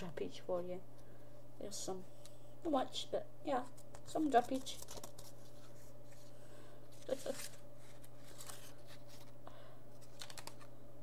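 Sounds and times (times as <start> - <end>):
low electrical hum: 0.0 - 11.0
paper rustling and tapping: 3.7 - 5.8, 10.0 - 10.7.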